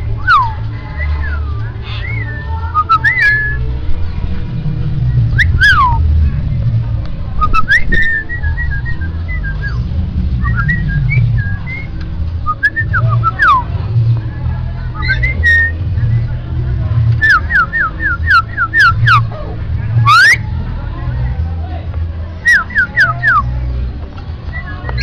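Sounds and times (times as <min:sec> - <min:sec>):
steady low rumble: 0:00.0 - 0:25.0
bird whistling: 0:00.2 - 0:03.6, 0:05.4 - 0:06.0, 0:10.4 - 0:11.9, 0:15.0 - 0:15.8, 0:17.2 - 0:19.2, 0:20.0 - 0:20.4, 0:22.5 - 0:23.4, 0:24.6 - 0:25.0.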